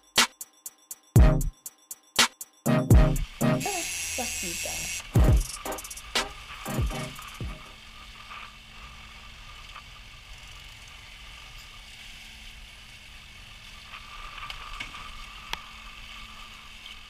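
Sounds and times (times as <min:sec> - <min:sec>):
low hum: 0:01.2 - 0:01.5, 0:02.7 - 0:03.7, 0:05.1 - 0:07.8
fishing reel clicking and whirring: 0:03.6 - 0:06.1.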